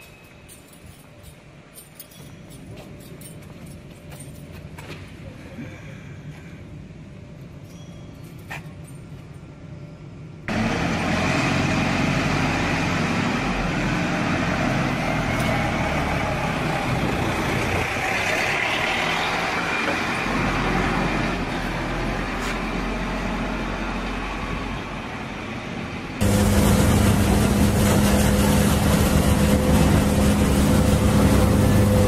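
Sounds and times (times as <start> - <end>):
heavy machinery rumble and hiss: 19.4 - 32.0.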